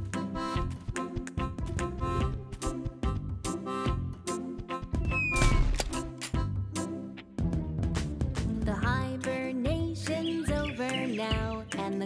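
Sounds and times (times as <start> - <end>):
upbeat cartoon music with drums: 0.0 - 12.0.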